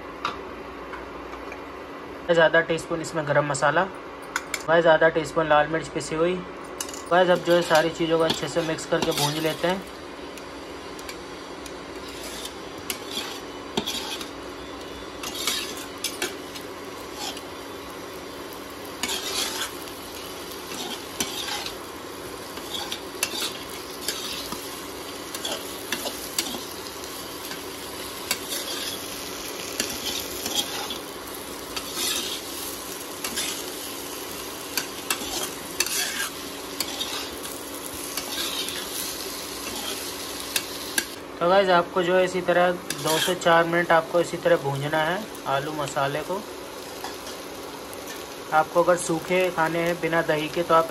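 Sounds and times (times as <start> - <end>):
spices sizzling: 5.5 - 50.9
spatula scraping a pan: 12.0 - 14.4, 15.2 - 17.5, 19.0 - 19.8, 20.6 - 21.8, 22.5 - 24.6, 28.3 - 29.1, 29.8 - 31.1, 31.7 - 32.6, 33.2 - 33.7, 34.8 - 37.5, 38.1 - 39.0, 39.6 - 41.1, 42.9 - 43.5.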